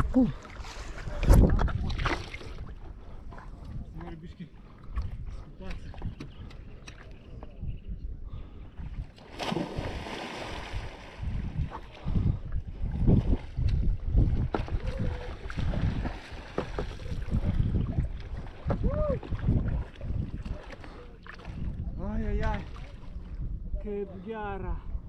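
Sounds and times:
wind buffeting microphone: 0:00.0 - 0:25.0
paddle splashing in water: 0:00.4 - 0:02.8, 0:09.2 - 0:11.1, 0:14.4 - 0:21.6.

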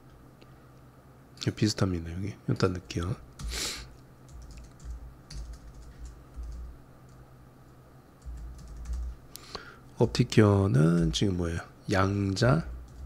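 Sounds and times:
keyboard typing: 0:04.2 - 0:07.2, 0:08.2 - 0:09.2, 0:10.8 - 0:11.2, 0:12.8 - 0:13.0.

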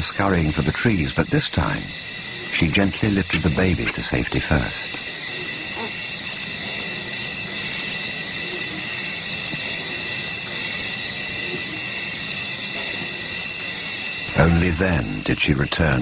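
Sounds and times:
insects chirping: 0:00.0 - 0:16.0.

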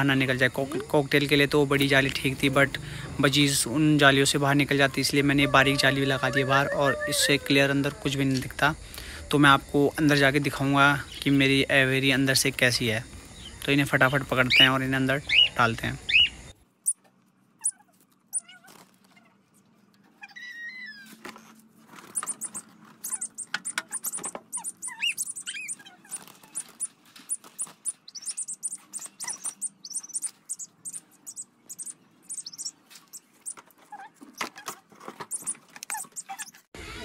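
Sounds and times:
cockatiels squawking and chirping: 0:20.2 - 0:36.7.

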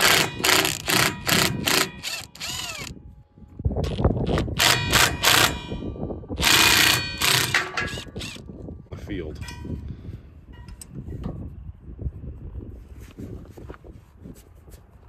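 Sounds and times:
impact driver hammering: 0:00.0 - 0:02.9, 0:04.5 - 0:08.4.

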